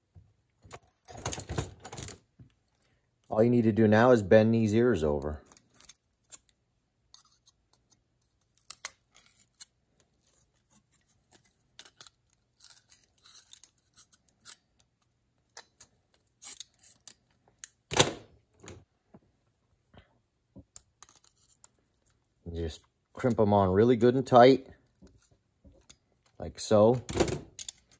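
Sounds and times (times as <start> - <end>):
small metal clicks and scrapes: 5.4 - 17.8, 20.7 - 23.4, 27.5 - 27.9.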